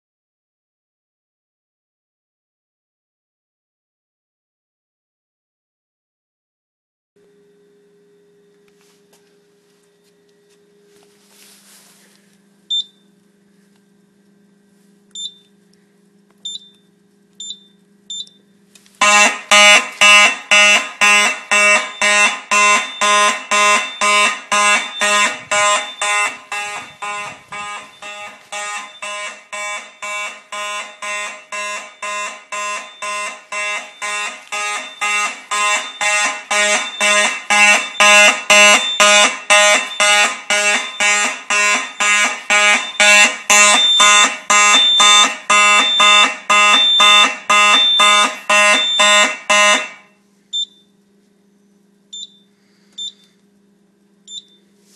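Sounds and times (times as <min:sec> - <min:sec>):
fire alarm horns buzzing: 0:15.1 - 0:15.6, 0:17.4 - 0:18.4, 0:19.0 - 0:50.7
short high beep: 0:21.1 - 0:50.0.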